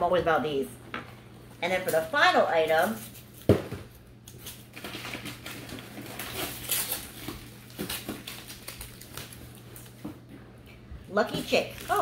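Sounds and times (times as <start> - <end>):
packaging crinkling and clicking: 2.9 - 10.0, 11.7 - 12.0.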